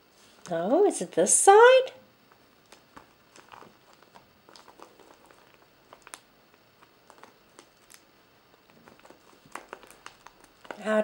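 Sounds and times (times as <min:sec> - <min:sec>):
fingers rubbing plastic: 0:02.7 - 0:06.2, 0:06.8 - 0:11.0.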